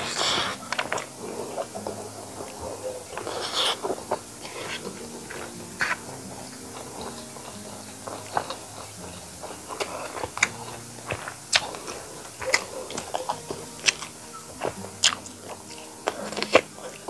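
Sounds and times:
close chewing food: 0.0s - 17.0s.

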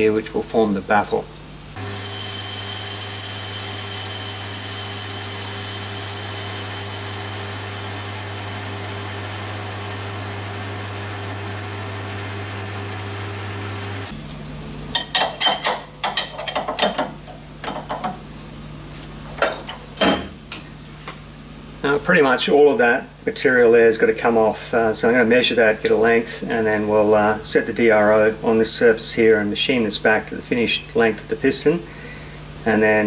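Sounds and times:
metal lathe humming: 1.8s - 12.8s.

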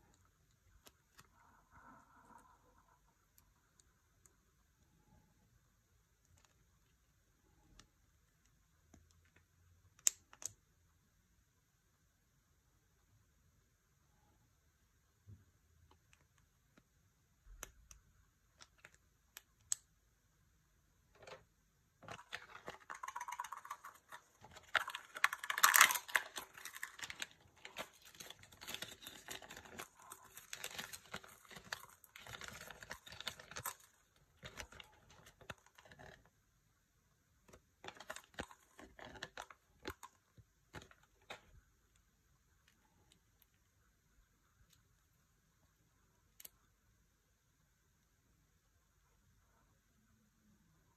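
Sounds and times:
plastic toy parts clicking: 22.0s - 36.2s
wrapper crinkling and tearing: 22.0s - 36.2s, 37.8s - 41.4s.

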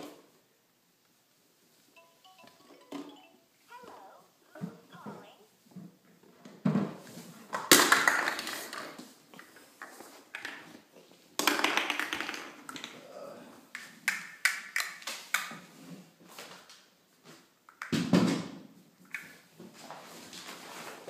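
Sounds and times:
toys clattering on hardwood floor: 6.5s - 10.8s, 11.4s - 13.0s.

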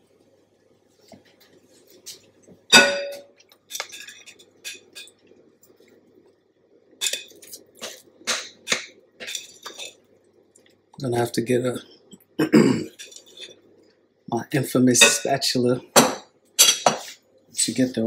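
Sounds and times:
spatula scraping a bowl: 7.8s - 10.0s, 13.0s - 13.6s.

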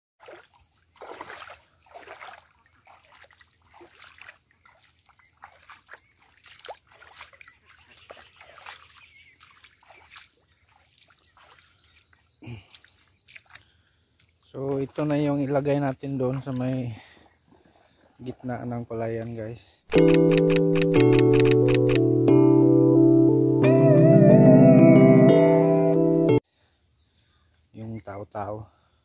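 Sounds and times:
footsteps through wet grass: 0.2s - 12.1s
small water splashes: 0.2s - 19.4s.

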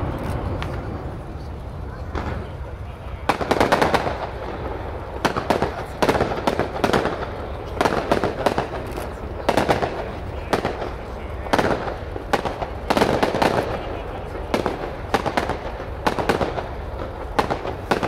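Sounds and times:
fireworks bursting: 0.0s - 18.0s.

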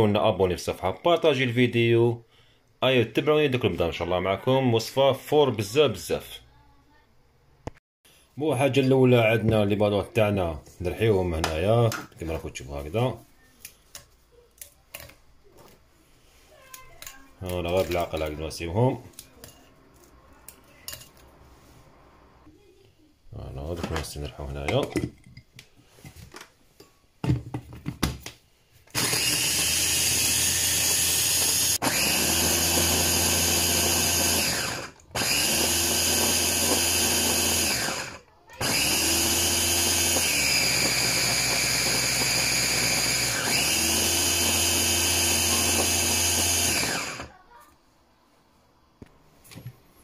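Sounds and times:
electric chopper motor grinding: 28.9s - 47.3s.

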